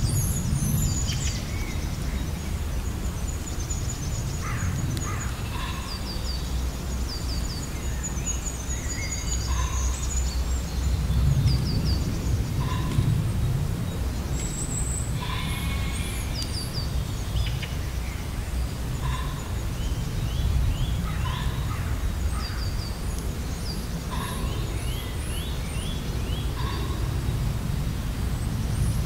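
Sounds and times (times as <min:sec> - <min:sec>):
low steady rumble: 0:00.0 - 0:29.0
songbirds singing: 0:00.0 - 0:29.0
lower bird call: 0:11.7 - 0:13.4, 0:14.4 - 0:17.8, 0:24.1 - 0:27.4.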